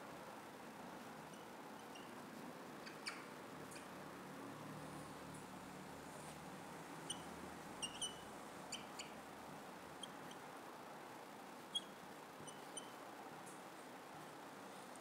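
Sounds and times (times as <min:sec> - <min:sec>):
faint room hiss: 0:00.0 - 0:15.0
whiteboard marker squeaking: 0:07.8 - 0:08.2.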